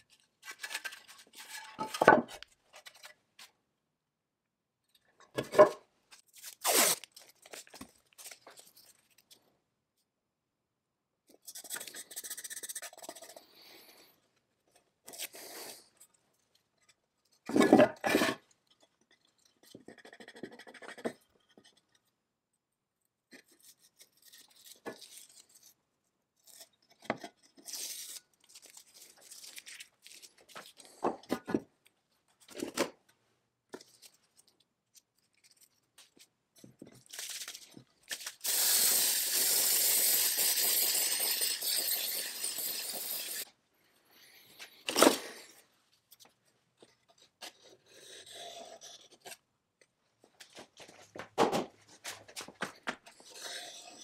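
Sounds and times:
scraping and rubbing chainsaw parts: 0.0 - 3.5, 16.8 - 18.5, 53.0 - 54.0.

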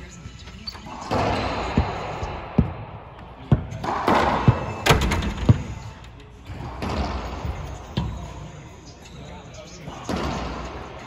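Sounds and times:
racquet hitting ball: 0.9 - 5.9
ball bouncing off court walls: 1.1 - 8.2.

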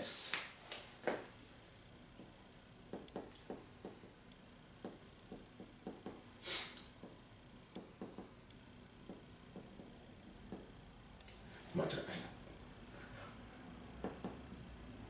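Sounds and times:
soft hiss: 0.0 - 3.6, 4.2 - 14.7
marker writing on whiteboard: 2.2 - 4.2, 4.8 - 6.3, 6.9 - 8.4, 9.0 - 10.8, 13.8 - 14.8.

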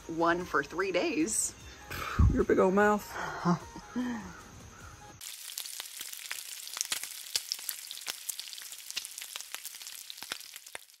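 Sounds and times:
bacon sizzling on a griddle: 5.2 - 11.0.

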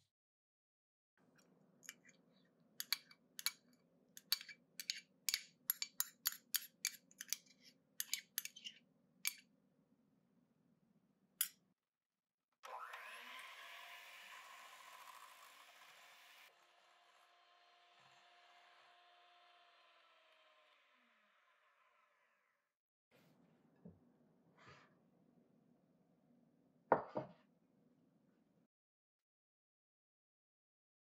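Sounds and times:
spoon tapping against glass: 4.2 - 7.4
electric hand mixer running: 12.6 - 21.4.

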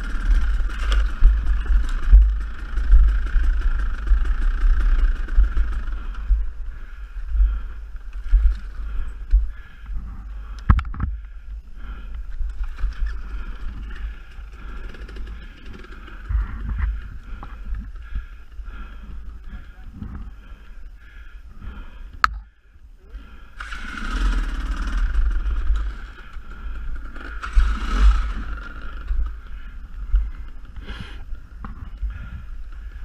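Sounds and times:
dirt bike engine running: 0.0 - 22.4, 23.2 - 33.0
wind rumble on microphone: 15.8 - 20.5.

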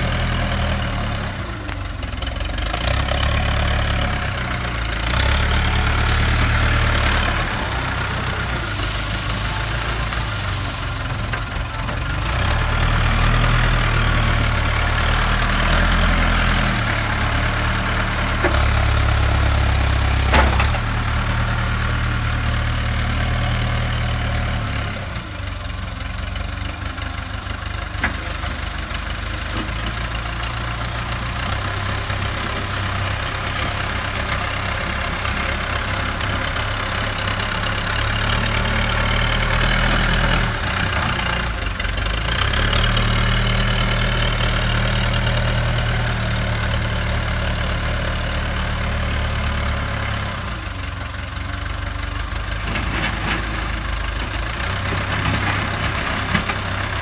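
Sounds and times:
backhoe diesel engine: 0.0 - 57.0.

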